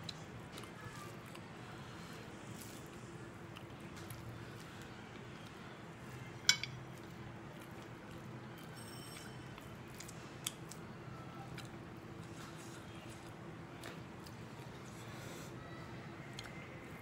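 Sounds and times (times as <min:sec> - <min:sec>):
person chewing: 0:09.5 - 0:15.5, 0:16.2 - 0:16.7.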